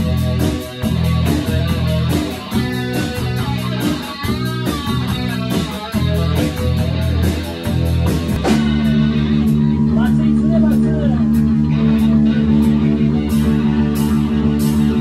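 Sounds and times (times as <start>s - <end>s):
drums keeping steady beat: 0.0s - 15.0s
electric guitars: 0.0s - 15.0s.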